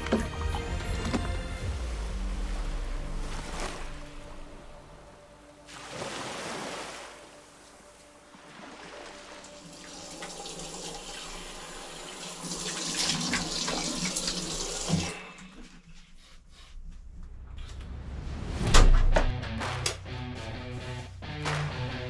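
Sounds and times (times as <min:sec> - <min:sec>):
water running: 0:08.0 - 0:15.5.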